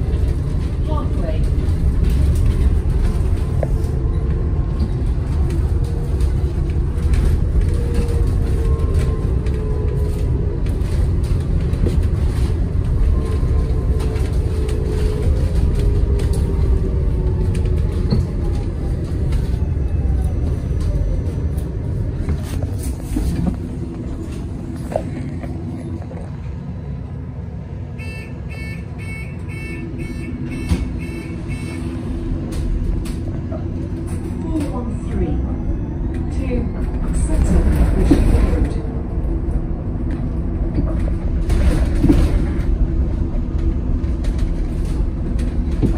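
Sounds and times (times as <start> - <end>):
bus road rumble: 0.0 - 45.9
short beeps: 28.0 - 31.8.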